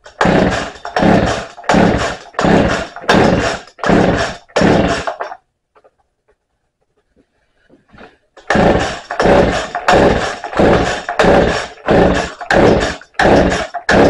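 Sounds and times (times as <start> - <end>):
chainsaw starter cord rasping: 0.0 - 5.4, 8.0 - 14.0.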